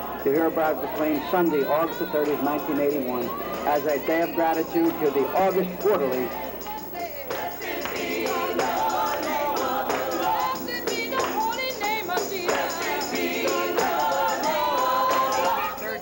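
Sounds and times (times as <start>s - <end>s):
group gospel singing: 0.0s - 16.0s
tambourine jingling: 0.0s - 16.0s
woman singing lead: 8.3s - 16.0s.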